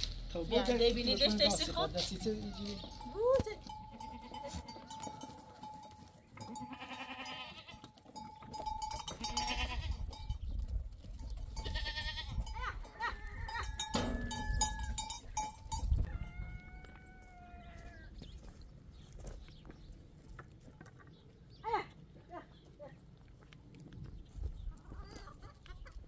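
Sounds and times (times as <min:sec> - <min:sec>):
livestock bell ringing: 0:00.6 - 0:17.0
goats bleating: 0:01.2 - 0:05.6, 0:06.4 - 0:08.0, 0:08.9 - 0:10.1, 0:11.6 - 0:13.8.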